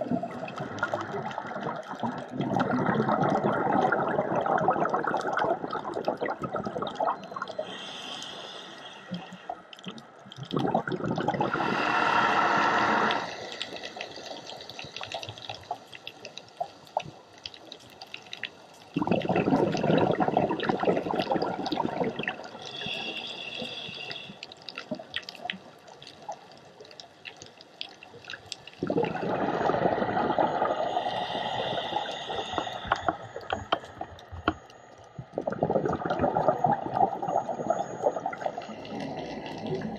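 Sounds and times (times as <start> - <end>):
small clicks and crackles: 0.0 - 3.1, 5.0 - 10.7, 13.1 - 19.0, 21.6 - 28.9, 32.3 - 35.5
exhaled bubbles rushing: 0.0 - 7.6, 10.4 - 14.0, 19.0 - 22.6, 28.8 - 33.6, 35.2 - 39.9
hissing inhalations: 7.6 - 9.6, 11.5 - 15.3, 22.6 - 24.4, 30.6 - 33.6.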